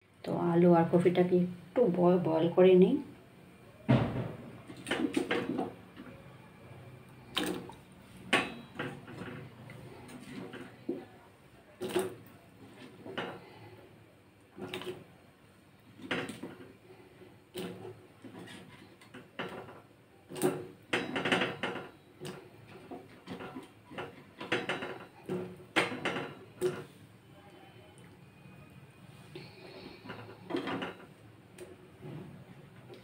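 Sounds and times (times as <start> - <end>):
utensils and pot clattering: 17.6 - 26.9, 29.4 - 31.2.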